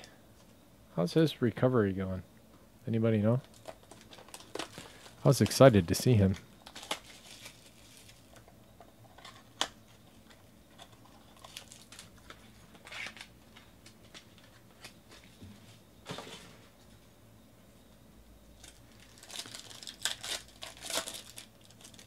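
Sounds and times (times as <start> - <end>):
cards rustling: 3.5 - 8.4.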